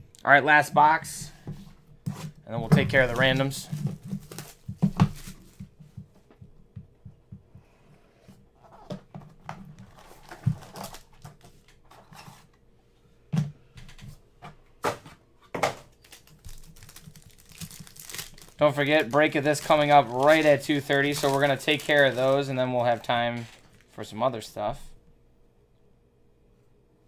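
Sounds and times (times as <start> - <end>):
foil pack crinkling: 15.9 - 24.1.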